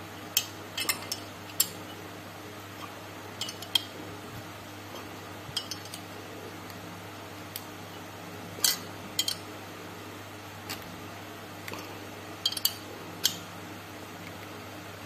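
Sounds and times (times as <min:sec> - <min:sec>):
wrench clinking on nut: 0:03.4 - 0:03.8.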